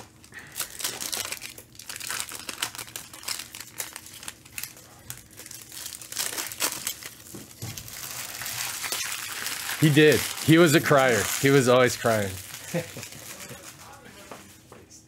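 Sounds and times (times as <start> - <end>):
foil wrappers crinkling and tearing: 0.0 - 14.7.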